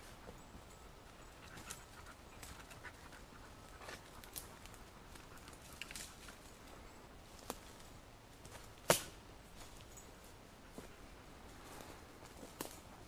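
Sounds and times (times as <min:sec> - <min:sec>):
dog panting: 0:01.1 - 0:05.8.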